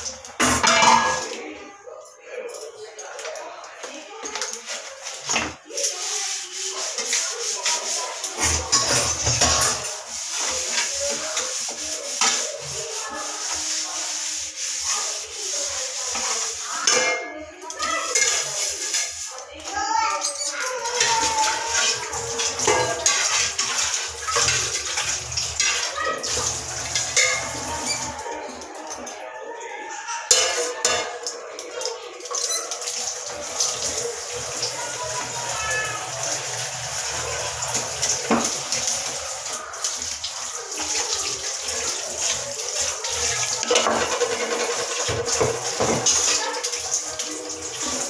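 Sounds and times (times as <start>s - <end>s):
tap water running into sink: 0.0s - 1.5s, 3.0s - 29.2s, 30.3s - 48.0s
utensils knocking: 7.0s - 12.8s, 20.2s - 29.1s, 43.6s - 46.3s.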